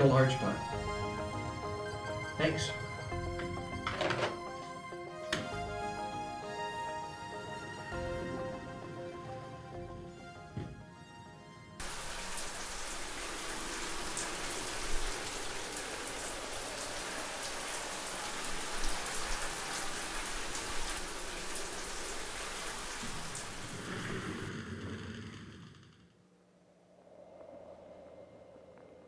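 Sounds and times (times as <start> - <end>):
shower water hitting floor: 11.8 - 24.6.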